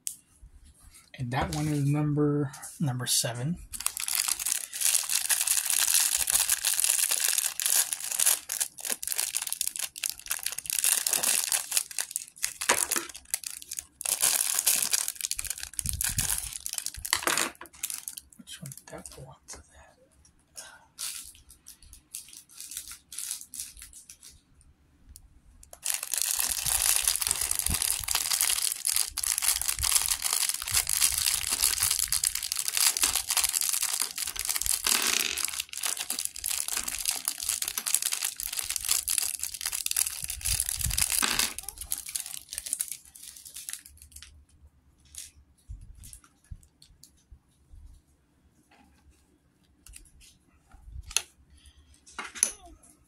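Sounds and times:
plastic bag crinkling: 3.7 - 19.2, 21.0 - 24.4, 25.6 - 44.4, 45.0 - 47.1.

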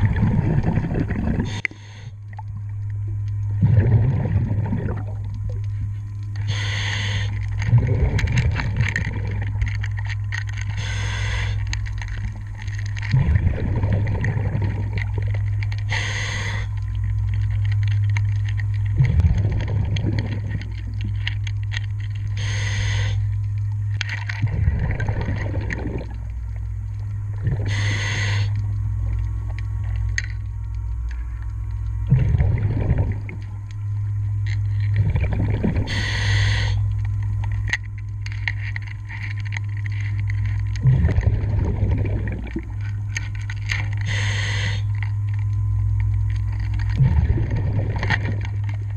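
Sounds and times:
bubbling on exhalation: 0.0 - 2.5, 3.5 - 5.6, 6.4 - 9.6, 13.0 - 16.8, 18.9 - 21.2, 24.4 - 26.3, 27.4 - 28.6, 32.0 - 33.5, 35.0 - 36.9, 40.8 - 42.8, 46.9 - 48.4
steady low hum: 0.0 - 48.9
regulator hiss on inhalation: 6.5 - 7.4, 15.9 - 16.7, 22.4 - 23.3, 27.6 - 28.6, 35.9 - 36.8, 44.0 - 44.9.

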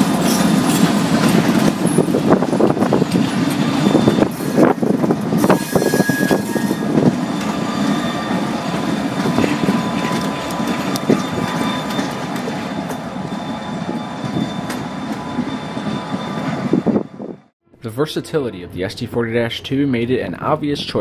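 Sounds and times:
freight train rumbling past: 0.0 - 21.0
high thin squeal: 5.4 - 8.7.

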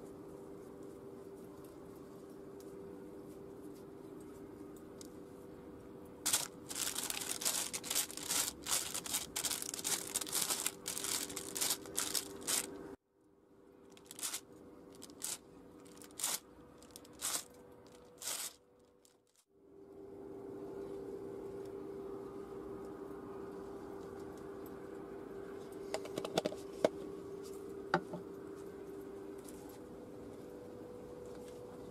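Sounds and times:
baking paper crinkling: 6.3 - 12.9, 13.9 - 19.4.

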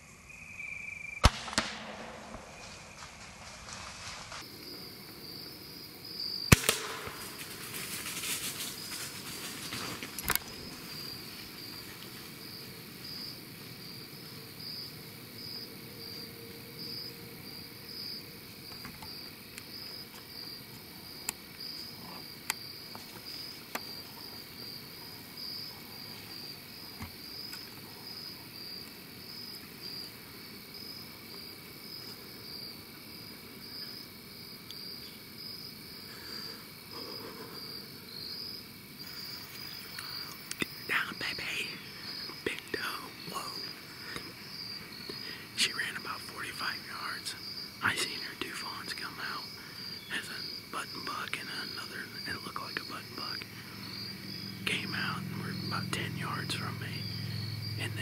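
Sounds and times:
crickets chirping: 0.0 - 58.0
sharp loud crack: 1.2 - 4.4, 6.5 - 7.7
sharp snap: 1.2 - 4.4, 6.5 - 7.5
rustling noise: 2.4 - 4.5, 7.1 - 12.4.

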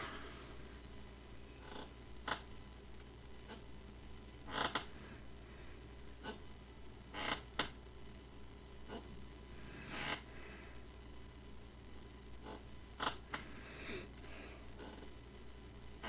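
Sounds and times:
person sniffing: 0.0 - 0.9, 13.4 - 14.7
faint steady hum: 0.0 - 16.0.

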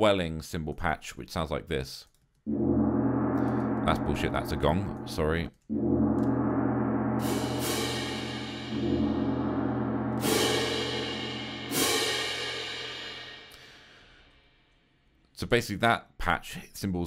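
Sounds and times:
low gong ringing: 2.5 - 5.1, 5.7 - 12.0
cymbal crashes: 2.5 - 14.0.

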